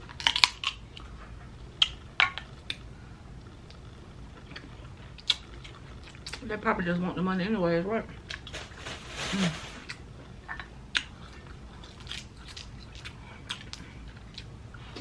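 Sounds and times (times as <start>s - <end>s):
person chewing: 4.4s - 6.4s, 9.8s - 15.0s.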